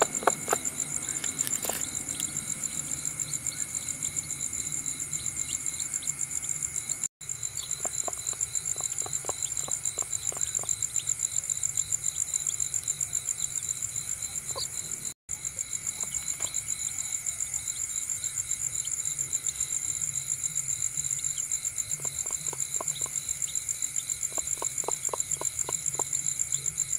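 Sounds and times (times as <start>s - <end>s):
chicks pecking feed: 0.0s - 1.8s, 7.6s - 10.7s, 22.0s - 23.2s, 24.3s - 26.1s
crickets chirping: 0.0s - 26.9s.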